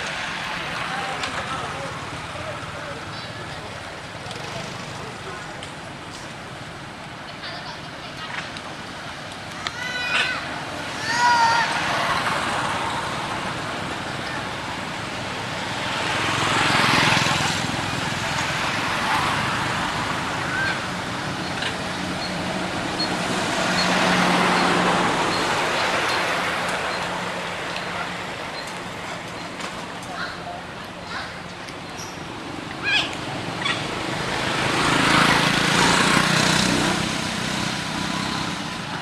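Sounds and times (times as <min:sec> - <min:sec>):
vehicles passing: 0:00.0 - 0:39.0
steady engine hum: 0:10.4 - 0:39.0.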